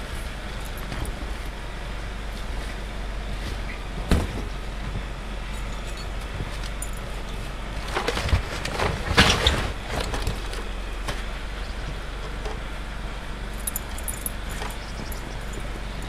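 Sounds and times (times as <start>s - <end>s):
low background hum: 0.0s - 16.0s.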